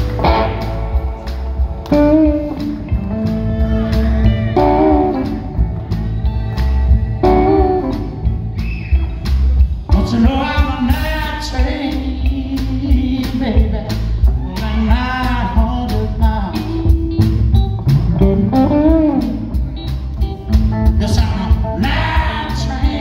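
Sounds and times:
lead guitar bending notes: 0:00.0 - 0:08.6, 0:16.4 - 0:22.1
bass: 0:00.0 - 0:23.0
electric guitars: 0:00.0 - 0:23.0
steady drum beat: 0:00.0 - 0:23.0.

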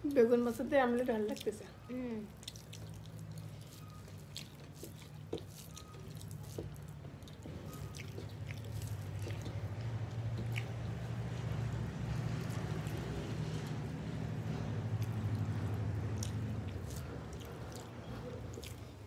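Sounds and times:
chewing: 0:01.2 - 0:19.0
fingers squishing wet rice: 0:02.3 - 0:19.0.

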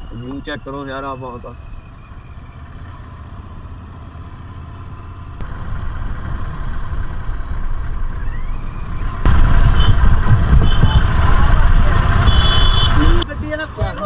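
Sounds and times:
motorcycle engine running: 0:02.7 - 0:13.2
wind noise: 0:08.2 - 0:14.0.

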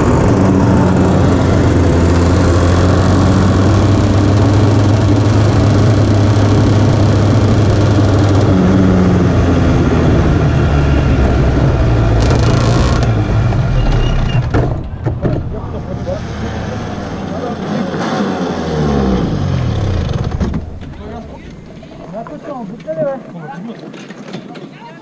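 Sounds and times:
kart two-stroke engine running: 0:00.0 - 0:10.0, 0:11.6 - 0:13.4.

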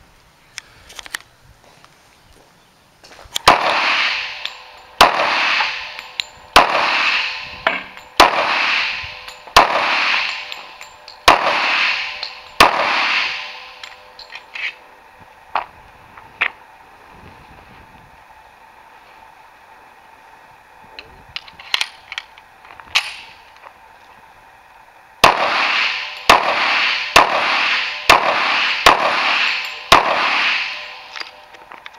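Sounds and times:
pistol shots echoing: 0:03.5 - 0:10.7, 0:11.3 - 0:13.8, 0:25.2 - 0:31.1.

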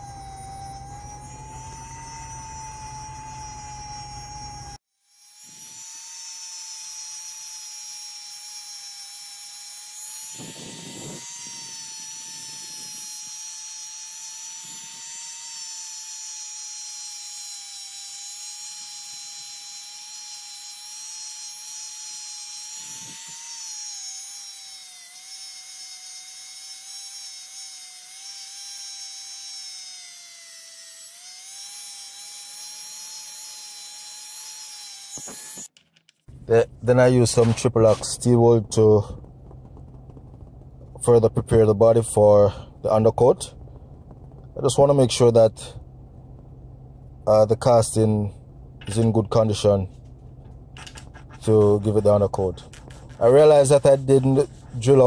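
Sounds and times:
rotary tool whining: 0:00.0 - 0:46.8, 0:48.8 - 0:55.0
wire wheel scratching metal: 0:50.8 - 0:55.0.

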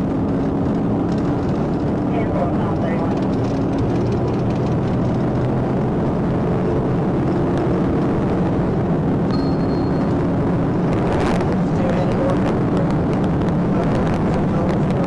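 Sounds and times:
car engine and road noise: 0:00.0 - 0:15.0
brief high tone: 0:09.3 - 0:10.2.

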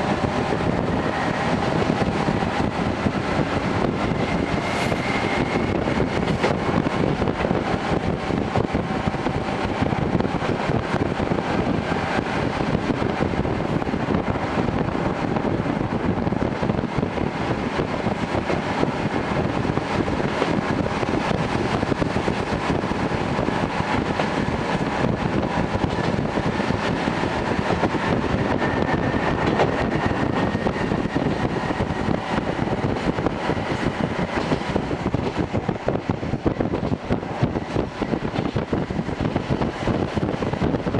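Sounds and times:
wheels on rails: 0:00.0 - 0:40.9.

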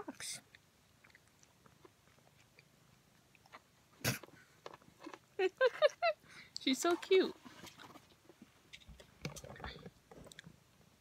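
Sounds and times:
cat chewing and biting: 0:00.4 - 0:05.8.

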